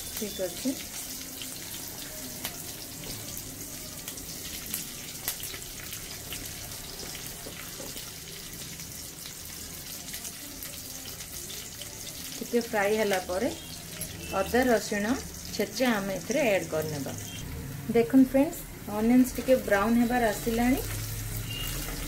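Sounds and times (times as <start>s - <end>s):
onions sizzling in hot oil: 0.0s - 22.0s.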